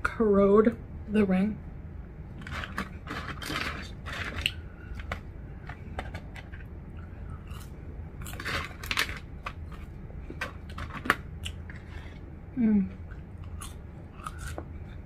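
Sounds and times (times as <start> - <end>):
chewing crunchy food: 2.4 - 12.3, 12.9 - 15.0.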